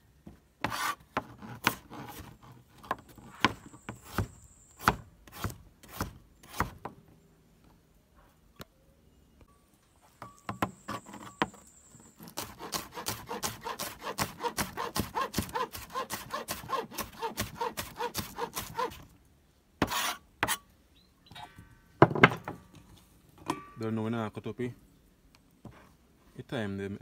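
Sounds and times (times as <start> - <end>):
cleaver scraping board: 0.6 - 7.0, 10.6 - 19.0, 19.8 - 20.6.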